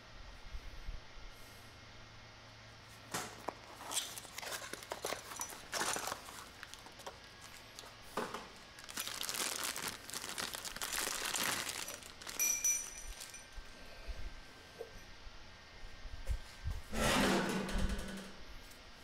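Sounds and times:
plastic and cardboard packaging crinkling: 3.1 - 13.5.

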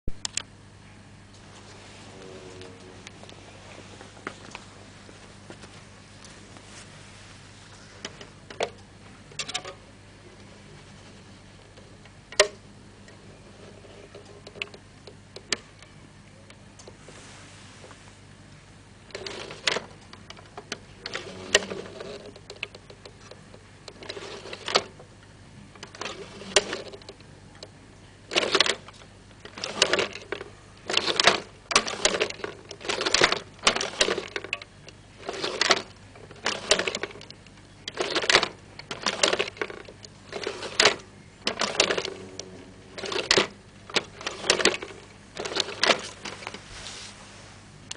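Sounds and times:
mechanism rattling clacks: 8.0 - 9.8, 19.1 - 25.0, 28.3 - 46.6.

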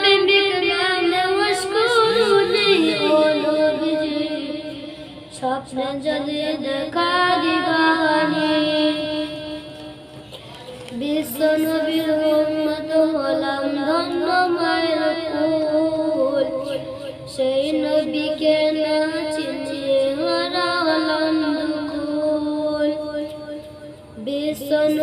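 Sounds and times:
boy singing devotional song: 0.0 - 25.0.

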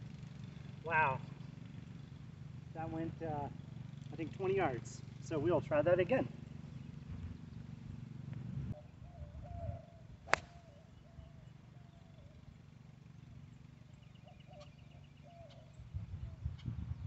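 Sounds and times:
golf club striking ball: 10.2 - 10.8.

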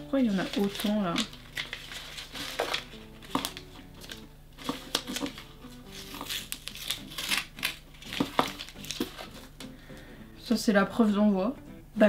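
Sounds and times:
paper and envelope rustling: 0.0 - 9.7
faint background music: 0.0 - 12.0.

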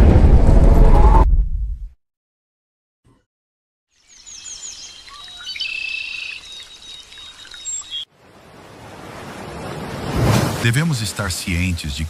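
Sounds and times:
songbirds chirping and trilling: 4.0 - 8.1
surf rushing: 8.3 - 12.0.

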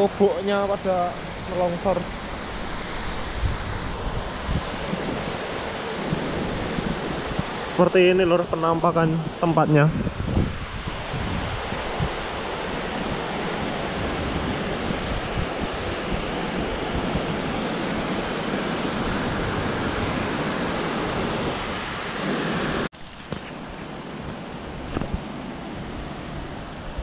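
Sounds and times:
wind on microphone: 0.0 - 25.4.

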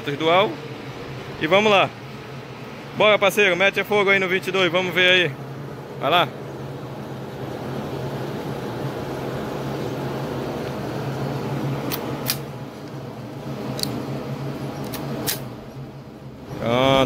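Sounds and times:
low mechanical hum: 0.0 - 17.0
rifle metallic clicks: 11.9 - 12.5, 13.7 - 14.0, 14.8 - 15.5.

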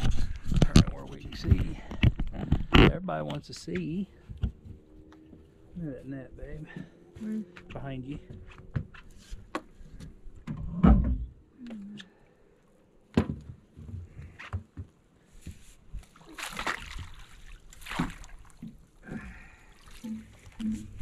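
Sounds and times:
water splashing and sloshing: 13.5 - 21.0.

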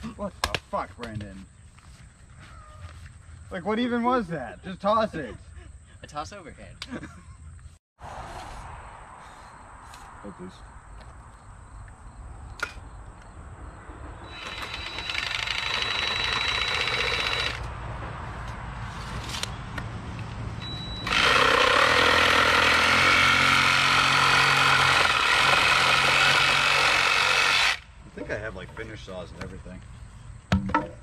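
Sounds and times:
reciprocating saw cutting wood: 14.3 - 17.7, 21.0 - 27.9.

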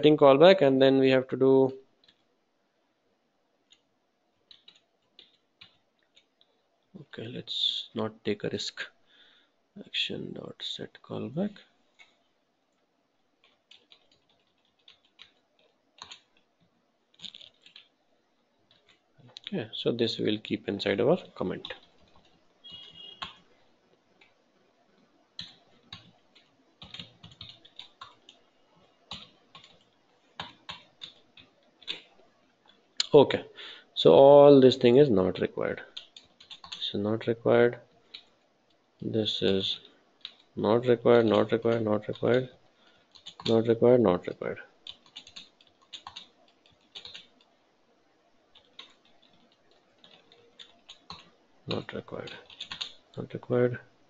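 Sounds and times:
computer keyboard typing: 4.4 - 6.4, 13.4 - 16.5, 17.1 - 17.9, 18.7 - 19.5, 21.2 - 23.4, 25.4 - 32.8, 35.9 - 36.9, 38.1 - 38.4, 39.8 - 47.5, 48.5 - 53.4.

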